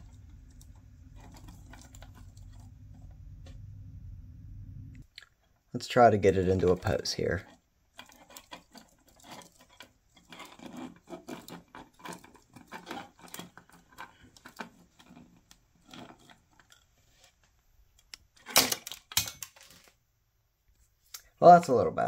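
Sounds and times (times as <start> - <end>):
small plastic clicks and rattles: 7.5 - 16.9.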